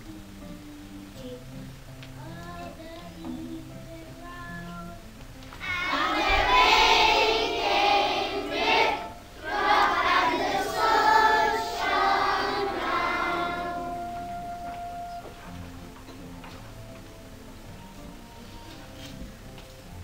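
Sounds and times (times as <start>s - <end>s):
children's choir singing: 5.6s - 15.5s.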